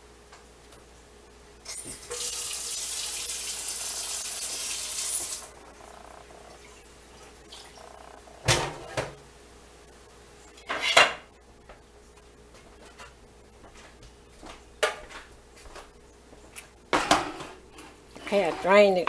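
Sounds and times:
pots and pans clattering: 0:08.4 - 0:09.2, 0:17.0 - 0:17.6.

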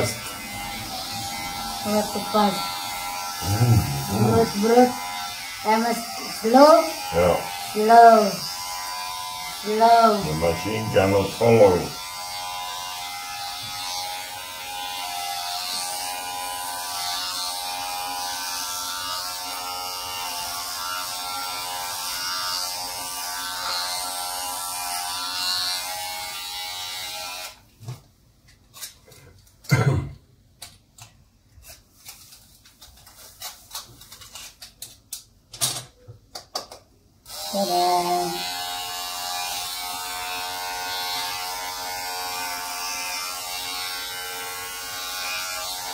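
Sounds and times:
electric hair clippers buzzing: 0:00.0 - 0:27.6, 0:37.3 - 0:45.9.

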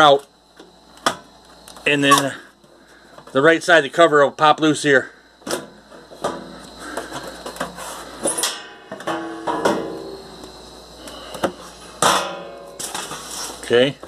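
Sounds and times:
computer case clicks and knocks: 0:09.0 - 0:10.0.

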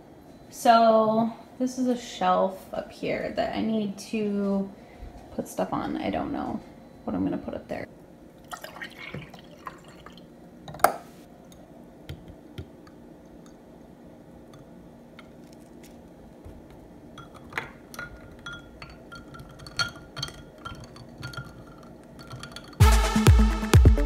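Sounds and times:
drink pouring over ice: 0:08.4 - 0:10.2
ice clinking against glass: 0:17.2 - 0:22.8.

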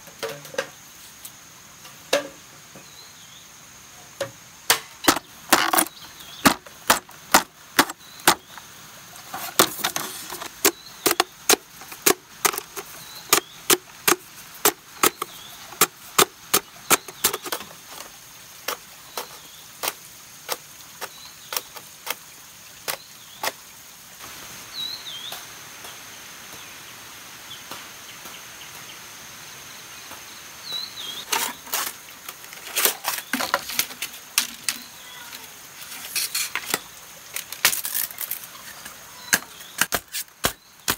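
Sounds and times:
sharp strikes on bamboo: 0:04.2 - 0:08.5, 0:39.3 - 0:40.9.

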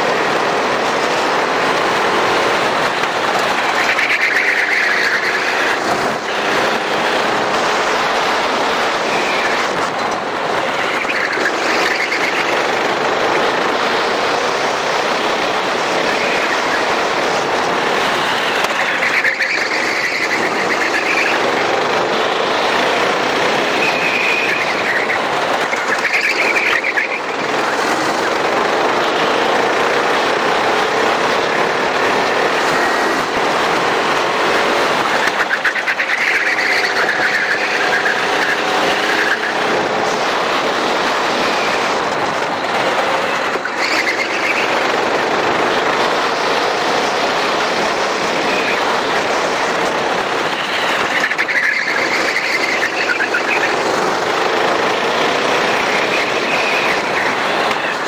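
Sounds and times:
kart engine accelerating: 0:00.0 - 0:58.0
loud steady rushing noise: 0:00.0 - 0:58.0.

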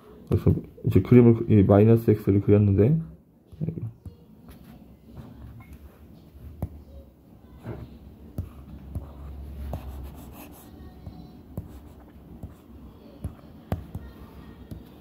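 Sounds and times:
stylus tapping on tablet screen: 0:11.0 - 0:15.0.

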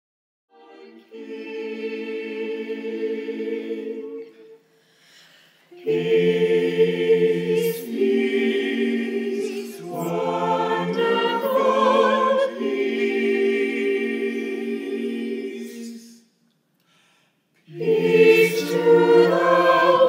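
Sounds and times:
mixed choir singing chords: 0:00.5 - 0:04.9, 0:05.6 - 0:16.3, 0:17.6 - 0:20.0.

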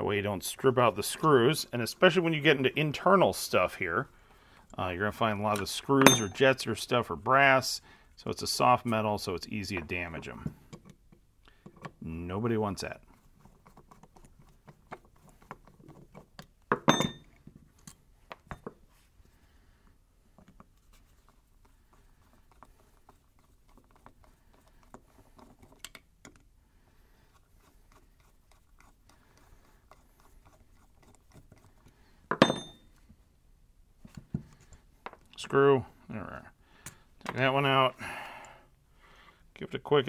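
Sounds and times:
metal parts clattering on bench: 0:16.7 - 0:17.4, 0:32.3 - 0:32.8.

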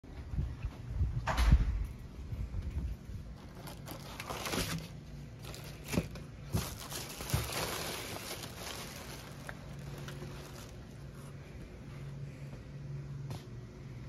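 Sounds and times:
plastic wrap rustling and crinkling: 0:03.2 - 0:11.5
sharp plastic crackles: 0:03.3 - 0:11.4.

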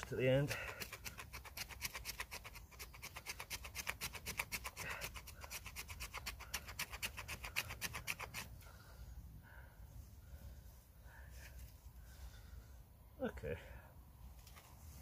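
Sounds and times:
knife scraping dry wood: 0:00.0 - 0:08.5.

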